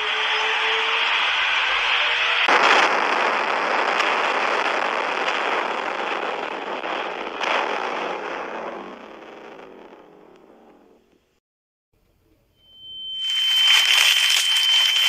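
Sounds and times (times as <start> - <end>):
faint rising whistle: 0.0 - 2.5, 12.3 - 15.0
loud rushing noise: 0.0 - 10.0
harsh crash-like blast: 2.4 - 10.9.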